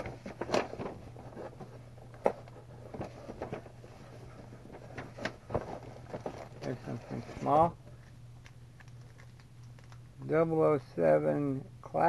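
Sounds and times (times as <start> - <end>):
rustling packaging in a box: 0.0 - 8.1, 8.8 - 10.0
steady low hum: 0.0 - 12.0.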